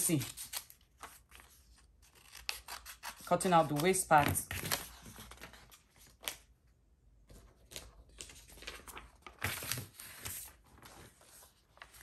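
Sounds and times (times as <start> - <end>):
paper rustling: 3.2 - 6.4, 7.3 - 12.0.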